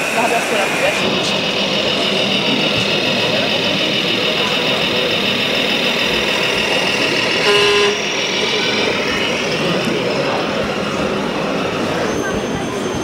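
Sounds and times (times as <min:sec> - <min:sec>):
hall noise: 0:00.0 - 0:13.0
steady high whine: 0:00.0 - 0:13.0
model truck horn: 0:07.4 - 0:08.0.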